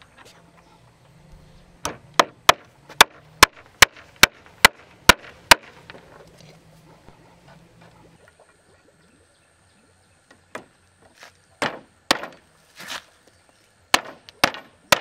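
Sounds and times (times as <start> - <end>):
tool striking wood: 1.8 - 5.8, 11.6 - 12.4, 13.9 - 15.0.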